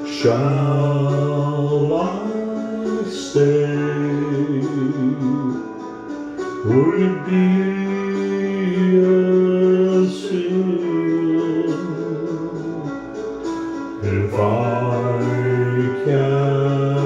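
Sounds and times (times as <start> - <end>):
guitar: 0.0 - 17.0
man singing a slow ballad: 0.0 - 17.0.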